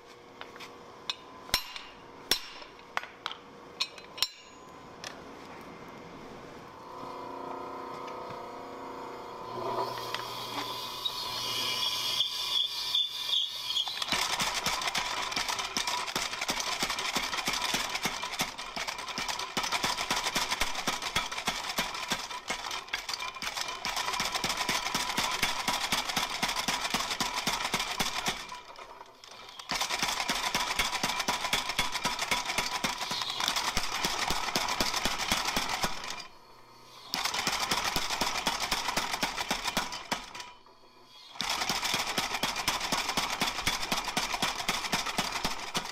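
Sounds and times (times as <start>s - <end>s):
power hammer pounding steel: 1.5s - 2.7s.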